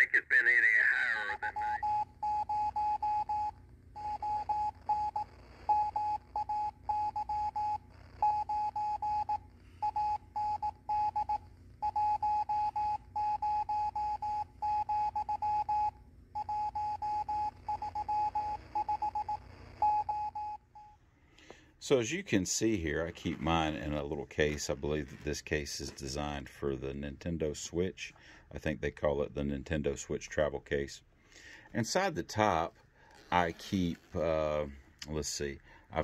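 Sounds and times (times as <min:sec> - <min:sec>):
morse code beeping tone: 0:01.4 - 0:21.0.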